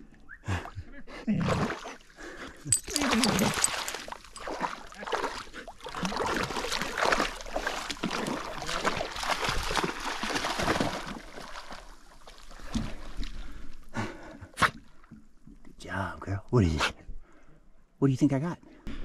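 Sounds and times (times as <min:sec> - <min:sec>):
dogs splashing through water: 0:01.4 - 0:13.4.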